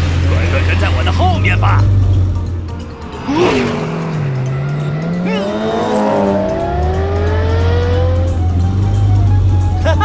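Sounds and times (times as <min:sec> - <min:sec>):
background music: 0:00.0 - 0:10.0
cartoon race car engines revving: 0:03.0 - 0:09.2.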